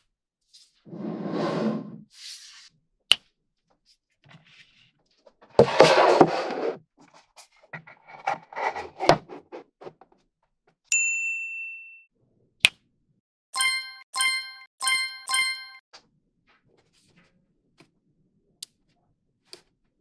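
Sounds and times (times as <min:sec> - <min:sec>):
ringing ding: 0:10.9 - 0:12.1, 0:13.6 - 0:15.8.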